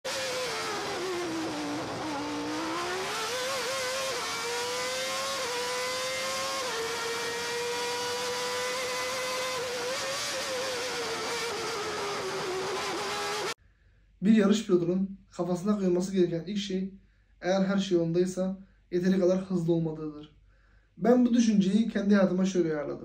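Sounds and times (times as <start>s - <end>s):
racing car engine at high revs: 0.0s - 13.6s.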